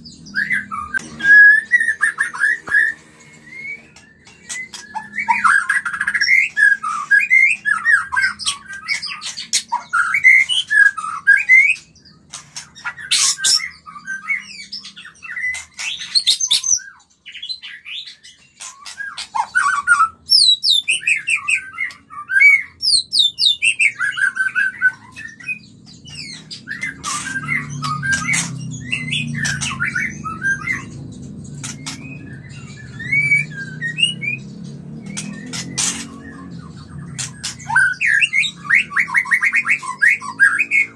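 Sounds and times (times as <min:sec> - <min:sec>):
bird singing whistled phrases: 0:00.3 - 0:09.1, 0:31.6 - 0:40.9.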